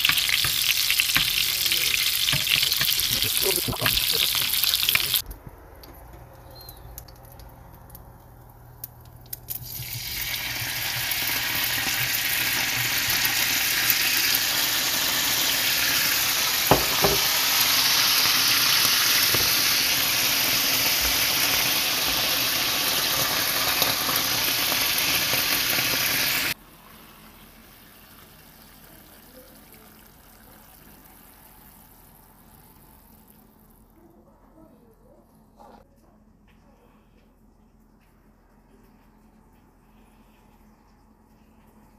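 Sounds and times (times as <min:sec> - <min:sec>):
sauce sizzling in frying pan: 0:00.0 - 0:05.2, 0:09.5 - 0:29.3.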